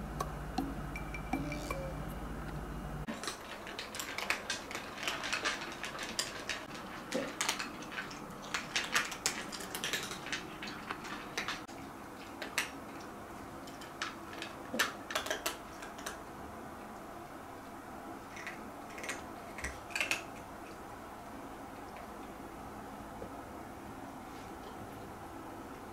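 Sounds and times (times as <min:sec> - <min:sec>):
cats crunching food: 0:03.1 - 0:16.4, 0:18.2 - 0:22.4.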